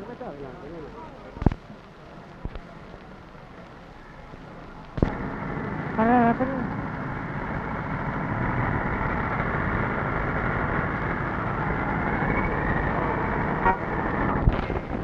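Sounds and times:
street traffic noise: 0.0 - 15.0
car horn with wavering pitch: 13.6 - 14.3.

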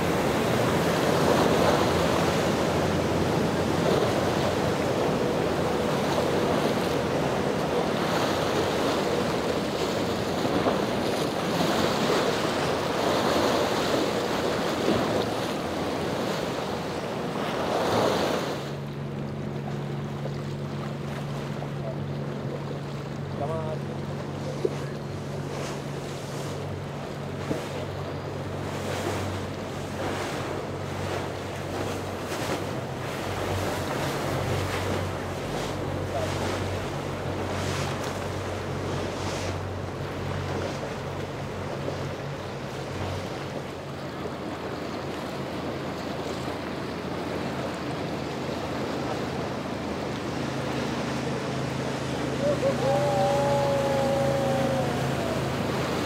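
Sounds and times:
motorboat engines humming: 0.0 - 56.0
waves washing: 0.0 - 56.0.

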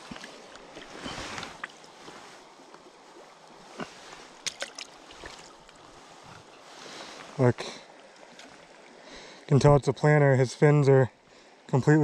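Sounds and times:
creek rushing: 0.0 - 12.0
fish splashing in water: 4.0 - 5.6.

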